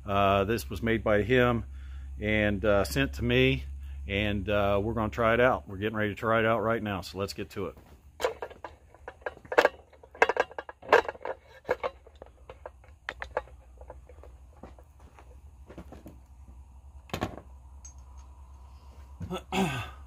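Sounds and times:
faint low hum: 0.0s - 20.0s
metal tools clinking: 8.2s - 15.4s, 17.8s - 18.6s.

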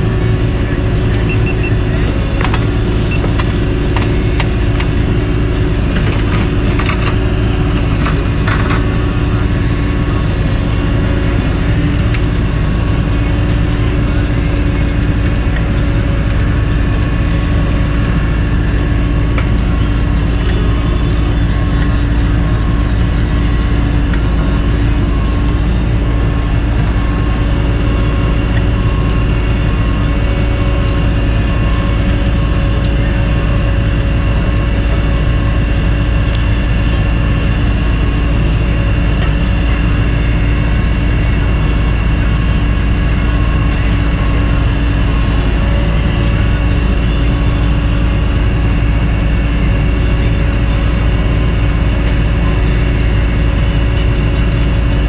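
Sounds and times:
diesel engine running: 0.0s - 55.0s
faint repeating beep: 1.2s - 2.1s.

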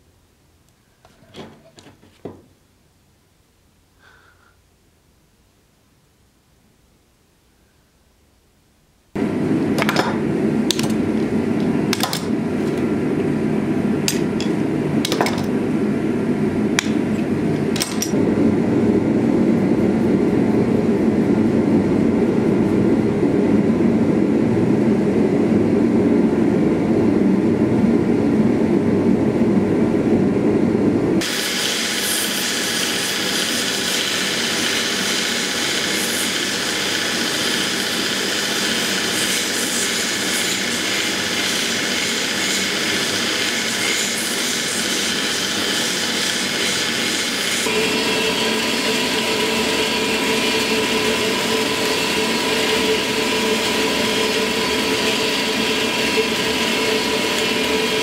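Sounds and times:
clicks and knocks of tools: 11.9s - 12.8s, 14.1s - 15.5s, 17.7s - 18.2s
belt grinder sanding wood: 31.2s - 58.0s.

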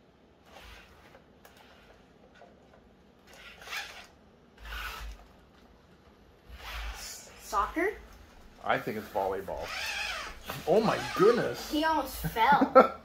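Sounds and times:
robot motors whirring: 0.4s - 2.0s, 3.2s - 5.3s, 6.5s - 7.8s, 9.6s - 11.7s.

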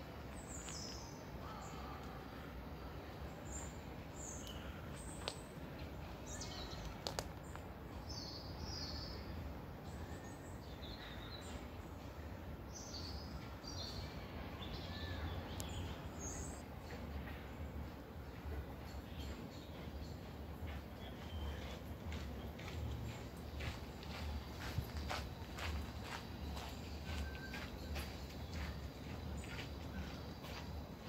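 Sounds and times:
small birds chirping: 0.3s - 31.0s.

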